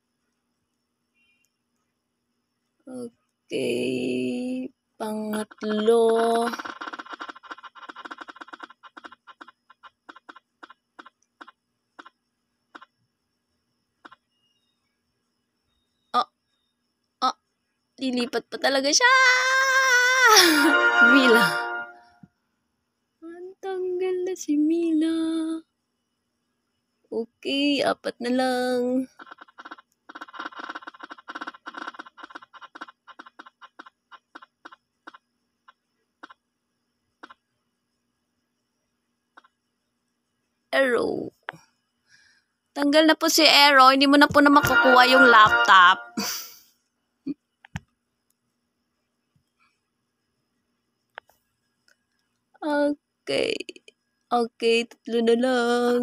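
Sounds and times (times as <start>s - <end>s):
phone app wheel ticking: 5.2s - 12.9s, 14.0s - 14.5s, 29.1s - 36.4s, 37.2s - 37.5s
spinning wheel app ticking: 5.3s - 12.2s, 44.2s - 46.2s.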